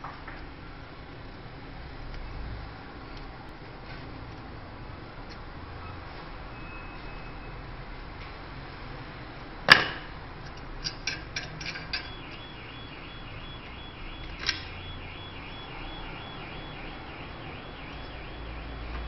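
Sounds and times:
metallic clicks of pipe fitting: 10.4 - 12.2.

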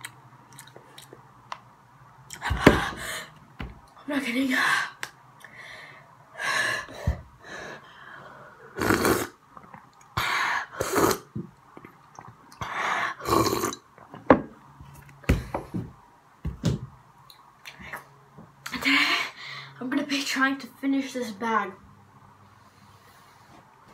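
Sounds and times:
boy gasping and exhaling: 2.4 - 3.4.

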